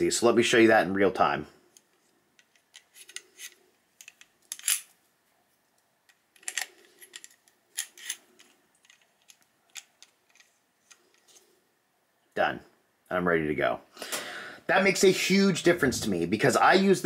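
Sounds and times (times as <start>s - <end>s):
light metallic clicks and scrapes: 1.7s - 5.0s, 6.1s - 11.6s.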